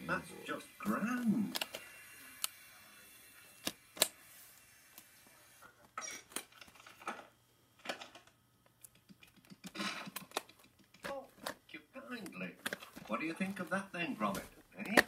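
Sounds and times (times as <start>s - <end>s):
plastic cases clicking and tapping: 14.3s - 15.0s.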